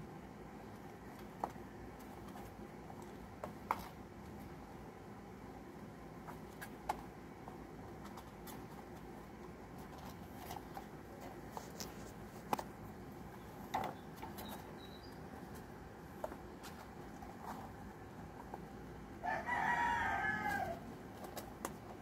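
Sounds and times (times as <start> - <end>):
faint steady hum: 0.0 - 22.0
kittens moving in wire cage: 6.2 - 22.0.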